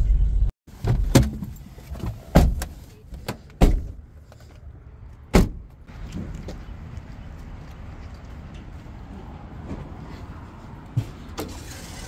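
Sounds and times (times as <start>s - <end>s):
car door rattling: 0.8s - 4.0s
car door clicks and knocks: 5.3s - 5.6s.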